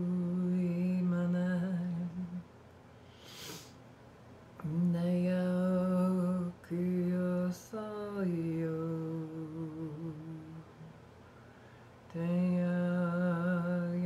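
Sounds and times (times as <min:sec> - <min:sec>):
woman humming a wordless chant: 0:00.0 - 0:02.5, 0:04.6 - 0:11.0, 0:12.1 - 0:14.0.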